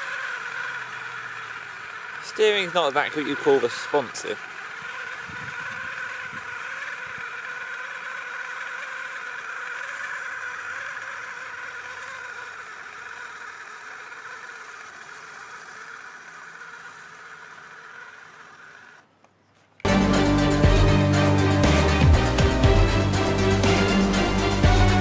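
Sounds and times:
electric motor whining: 0.0 - 19.2, 19.8 - 25.0.

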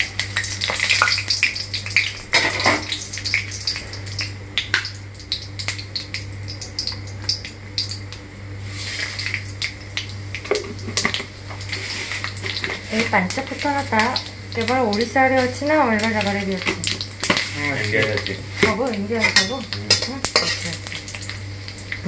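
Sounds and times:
spices sizzling and popping in oil: 0.0 - 22.0
spatula stirring: 10.6 - 13.1, 15.4 - 21.2.

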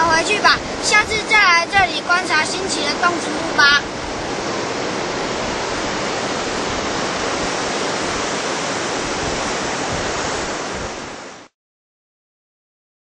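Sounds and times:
surf washing on a beach: 0.0 - 11.6.

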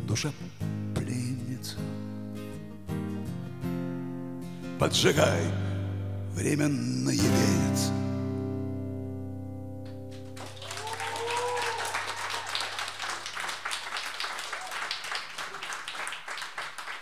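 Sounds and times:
acoustic guitar chord ringing: 1.9 - 10.4
audience applause: 10.2 - 17.0
person whooping: 10.4 - 13.3, 14.4 - 15.8.

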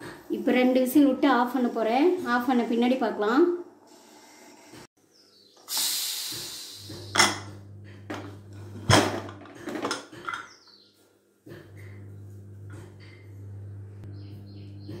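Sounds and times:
steam hissing from pressure cooker: 5.7 - 7.1
metal lid clanks: 7.2 - 10.6.

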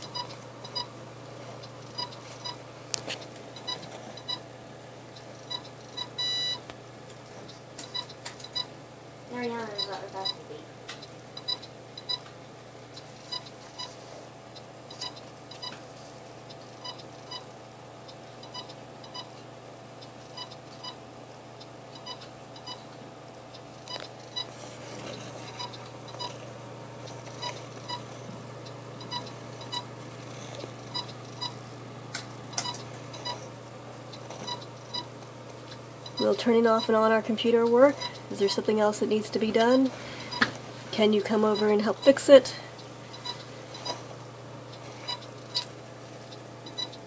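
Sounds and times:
steady low hum: 0.0 - 47.0
short high computer beeps: 5.5 - 6.6.

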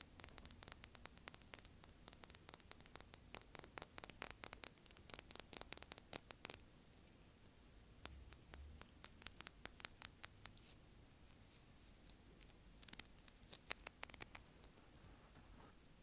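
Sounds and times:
fingers tapping on shell: 0.0 - 6.6, 8.0 - 10.6
steady hiss: 0.0 - 16.0.

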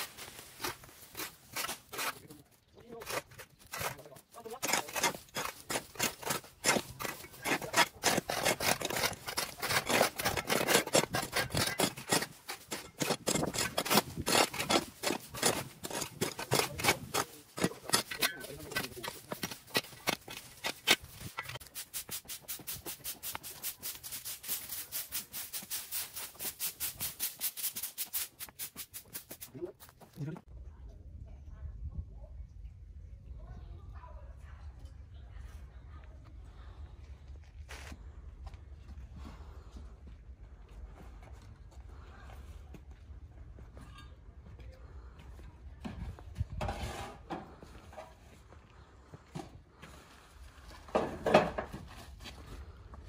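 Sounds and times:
quick scraping strokes: 4.6 - 30.0.

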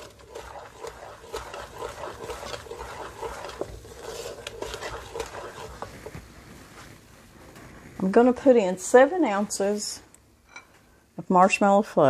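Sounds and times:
wooden spoon scraping a pot: 0.0 - 6.6.

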